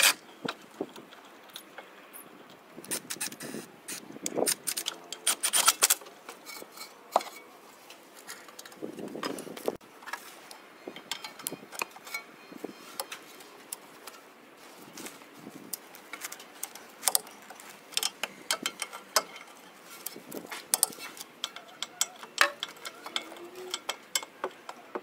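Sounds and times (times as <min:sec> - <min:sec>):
scraping rustle: 0:02.9 - 0:18.2, 0:18.8 - 0:23.9
metallic clinks of hand tools: 0:20.7 - 0:24.8.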